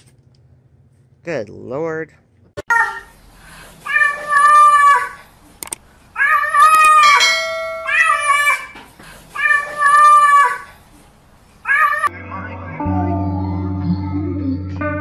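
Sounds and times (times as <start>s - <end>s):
cat meowing: 6.2s - 8.8s, 9.4s - 10.6s, 11.7s - 12.1s.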